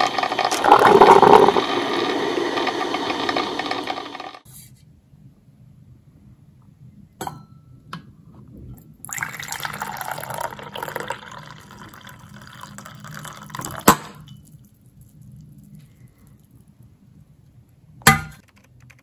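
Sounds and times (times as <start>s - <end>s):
coffee pouring into glass: 0.0s - 3.8s, 9.1s - 16.6s.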